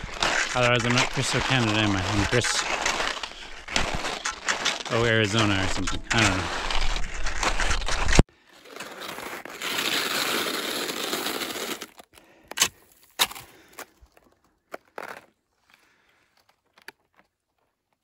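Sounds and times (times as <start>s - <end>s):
skis crunching over icy snow: 0.0s - 12.0s.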